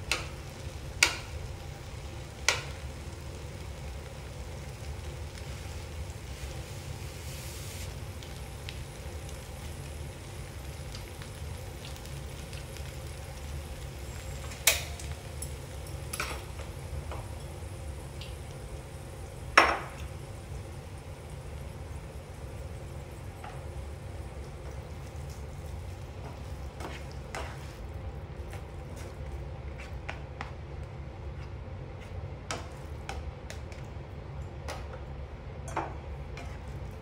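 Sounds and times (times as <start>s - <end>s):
food sizzling in a wok: 0.0s - 37.0s
chopsticks tapping on pan: 0.1s - 0.4s, 1.0s - 1.3s, 2.4s - 2.8s.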